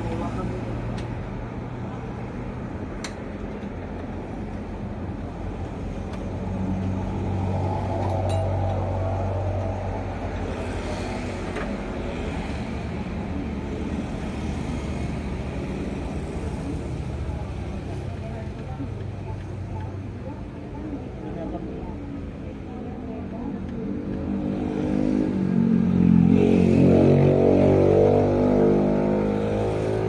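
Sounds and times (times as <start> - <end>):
engine hum: 0.0 - 30.0.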